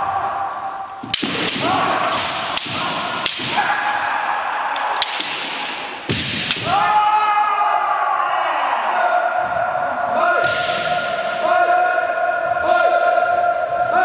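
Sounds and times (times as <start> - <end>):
bamboo swords striking: 1.0 - 7.0, 10.4 - 11.1.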